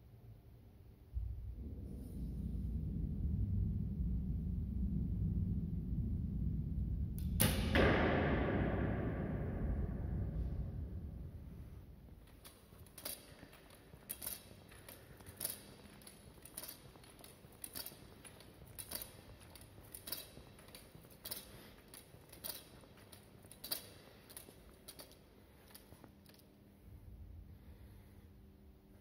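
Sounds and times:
footsteps on concrete floor: 8.7s - 26.6s.

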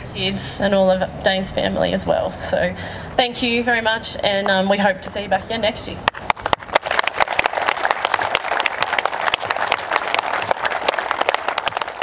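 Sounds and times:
crowd applauding: 6.2s - 12.0s.

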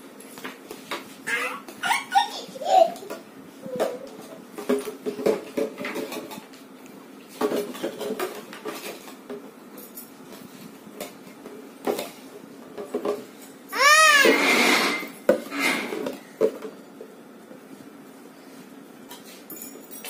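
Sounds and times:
plastic toys clattering: 7.4s - 10.0s.

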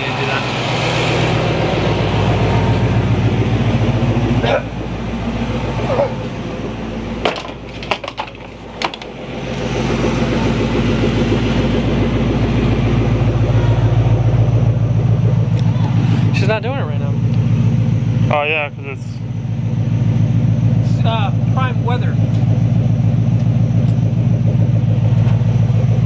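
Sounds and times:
car engine idling: 0.0s - 26.0s
sharp clicks and knocks: 7.2s - 9.7s.

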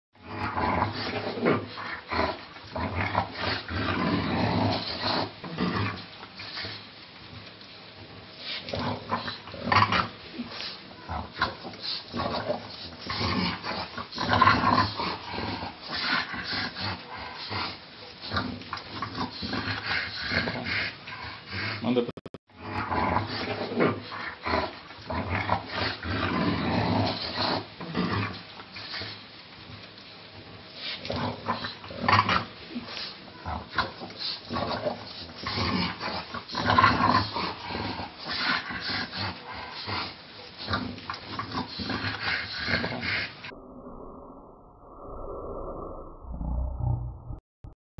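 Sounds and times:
dog growling: 0.2s - 7.4s, 8.4s - 29.9s, 30.8s - 44.6s.

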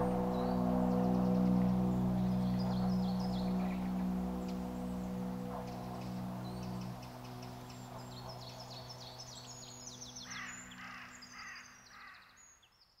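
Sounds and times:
low music drone: 0.0s - 11.7s
songbirds chirping: 0.0s - 13.0s
crow cawing: 10.2s - 12.4s.

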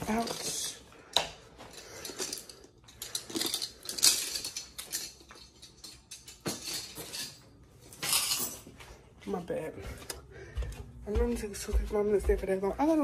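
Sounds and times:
small objects clattering: 0.0s - 8.7s.

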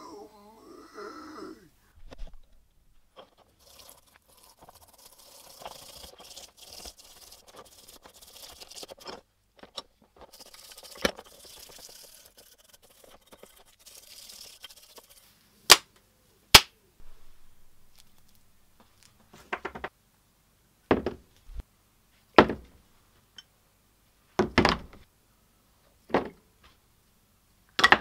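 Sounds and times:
wet scrubbing of metal parts: 3.1s - 15.4s.

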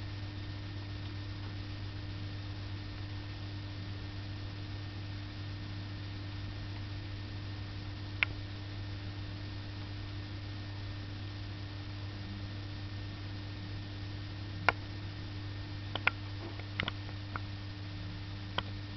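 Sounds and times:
low electrical hum: 0.0s - 18.9s
faint sharp ticks: 15.9s - 17.5s.

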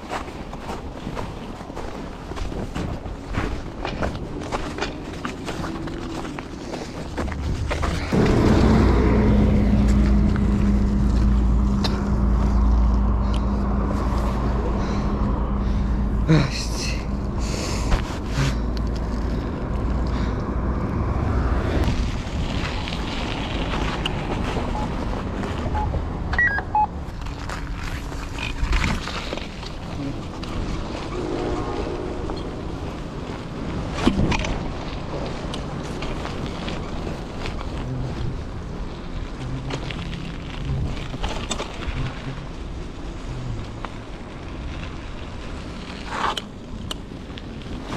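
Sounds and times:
wind buffeting microphone: 0.0s - 16.3s
bike tyres rolling rumble: 0.0s - 47.9s
steady hum: 4.2s - 19.5s
bike clicks and knocks: 39.4s - 42.2s.

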